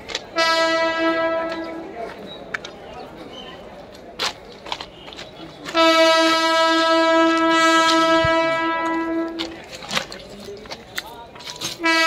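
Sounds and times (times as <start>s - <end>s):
locomotive horn blast: 0.4s - 1.9s, 5.0s - 9.6s, 11.7s - 12.0s.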